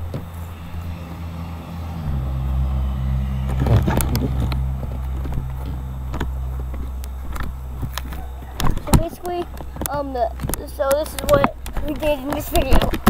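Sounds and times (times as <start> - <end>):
low engine hum: 0.0 - 13.0
clicks and rustles: 6.1 - 13.0.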